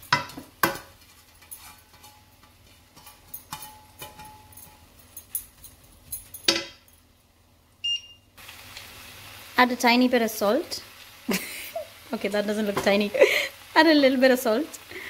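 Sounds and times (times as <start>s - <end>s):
wooden spatula scraping a wok: 0.8s - 4.2s.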